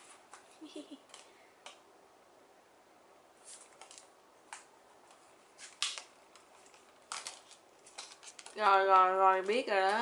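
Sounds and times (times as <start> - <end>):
cat rustling and tapping toy: 3.5 - 10.0.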